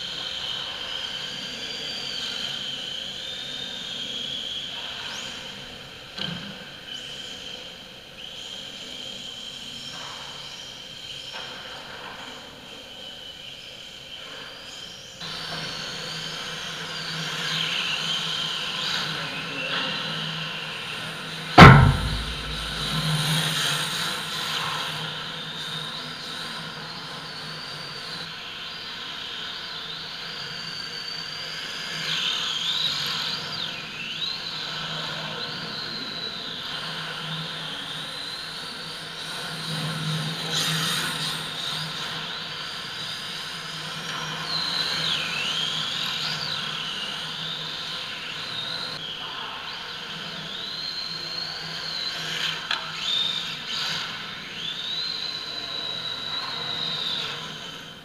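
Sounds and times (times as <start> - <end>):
sharp knocks: 21.6 - 23.3.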